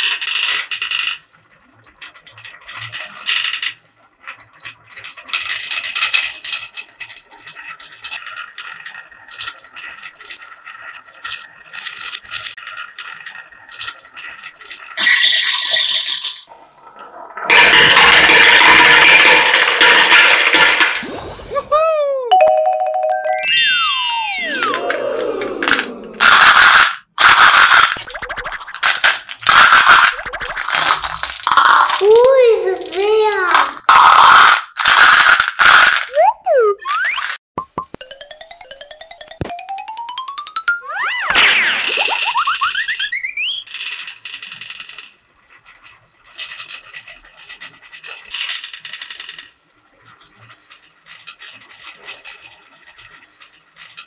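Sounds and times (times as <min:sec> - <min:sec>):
plastic balls rattling in a cup: 0:00.0 - 0:16.5, 0:17.5 - 0:21.0, 0:23.8 - 0:25.0, 0:25.6 - 0:37.4, 0:41.8 - 0:54.0
marbles rolling down wooden track: 0:00.0 - 0:21.0, 0:23.8 - 0:25.0, 0:25.6 - 0:36.3, 0:38.0 - 0:54.0
falling whistle-like tone: 0:23.2 - 0:25.6, 0:43.0 - 0:43.7.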